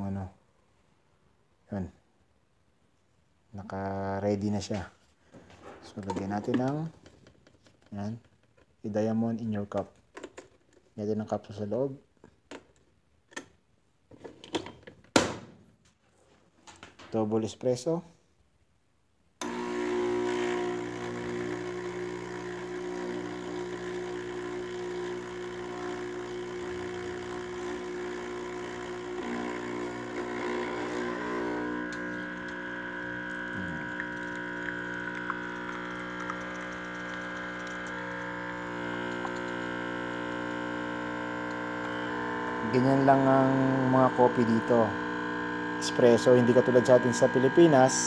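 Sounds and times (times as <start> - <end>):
espresso machine pump humming: 19.4 - 48.0
higher machine tone: 29.2 - 48.0.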